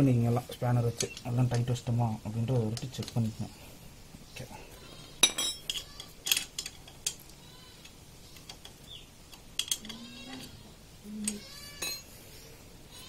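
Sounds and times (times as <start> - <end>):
spanner clinking against bolts: 5.2 - 7.2, 8.5 - 10.0.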